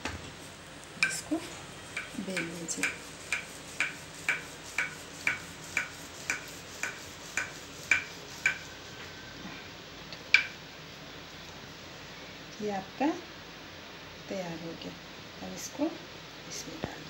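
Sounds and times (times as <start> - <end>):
rolling pin clacking on board: 2.0 - 8.7.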